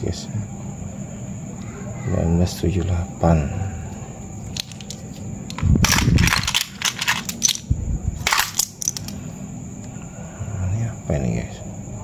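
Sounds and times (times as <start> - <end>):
coins clinking: 4.5 - 9.2.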